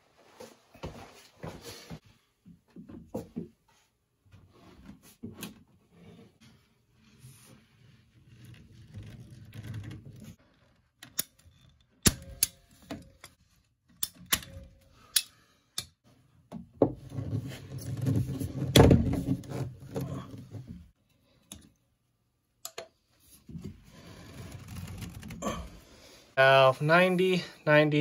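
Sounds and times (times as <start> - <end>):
plastic pipe scraping: 4.4 - 11.0, 16.8 - 20.9, 23.4 - 25.9.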